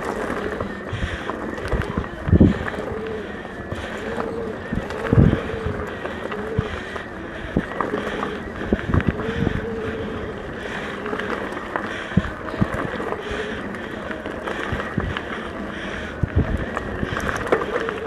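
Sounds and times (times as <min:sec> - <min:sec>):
bike tyres rolling on dirt: 0:00.0 - 0:18.0
wind buffeting microphone: 0:00.0 - 0:18.0
bike knocks and rattles: 0:16.0 - 0:18.0.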